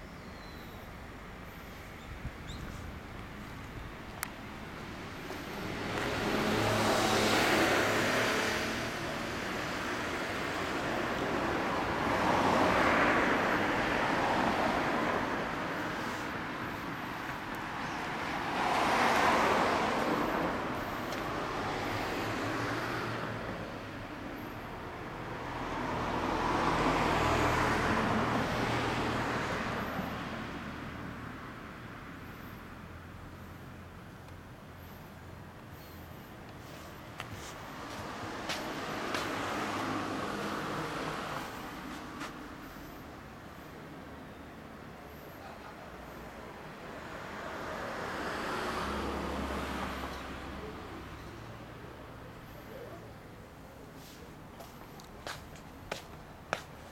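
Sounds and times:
vehicles passing by: 0:00.0 - 0:56.9.

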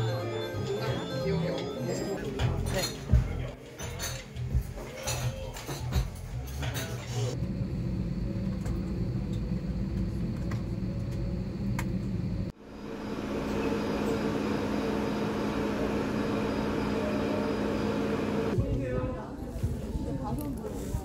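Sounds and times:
airliner cabin rumble: 0:07.4 - 0:18.6
subway train running: 0:07.4 - 0:18.6.

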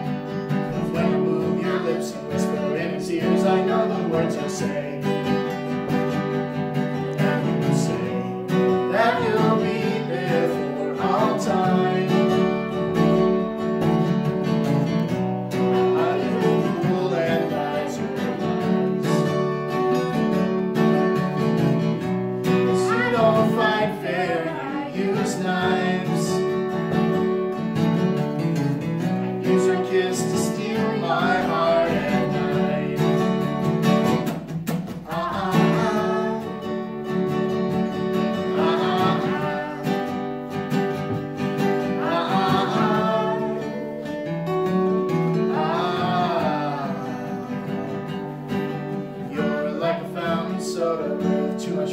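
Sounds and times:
acoustic guitar strumming: 0:00.0 - 0:51.9
person singing: 0:00.7 - 0:05.4, 0:07.0 - 0:13.1, 0:15.8 - 0:19.5, 0:22.6 - 0:26.8, 0:29.2 - 0:33.5, 0:34.9 - 0:37.1, 0:38.1 - 0:41.2, 0:41.8 - 0:44.3, 0:45.3 - 0:51.9.

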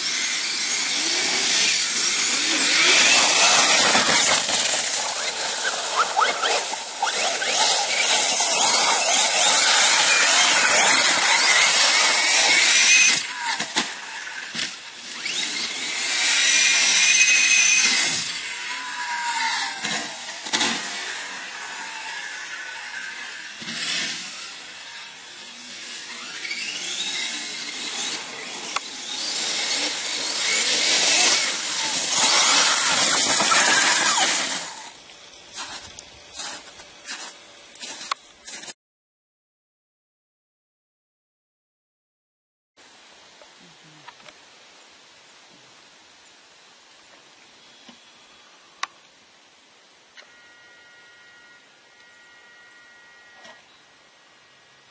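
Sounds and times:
radio-controlled buggy motor buzzing: 0:00.0 - 0:38.7, 0:50.2 - 0:53.7.

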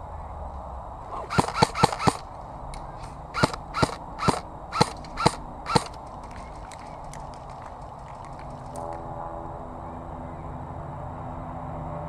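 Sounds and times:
airsoft gun shots: 0:01.1 - 0:02.3, 0:03.4 - 0:06.0.

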